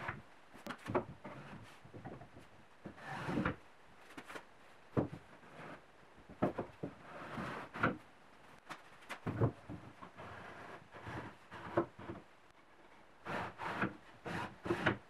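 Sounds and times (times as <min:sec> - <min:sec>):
wooden drawer scraping: 0:02.9 - 0:03.6.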